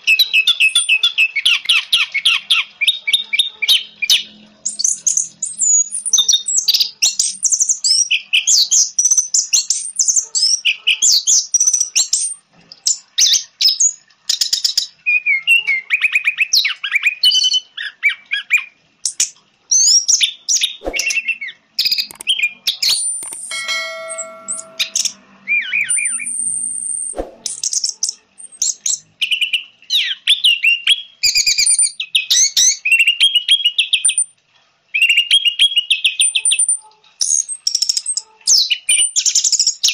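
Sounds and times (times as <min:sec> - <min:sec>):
buzzy held bird note: 0:23.5 - 0:25.2.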